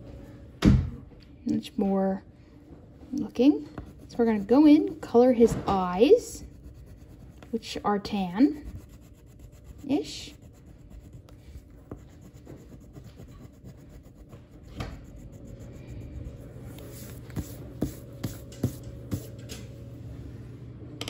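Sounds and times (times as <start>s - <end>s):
steady low hum: 0.0s - 21.0s
drawing tool rubbing on paper: 3.7s - 19.3s.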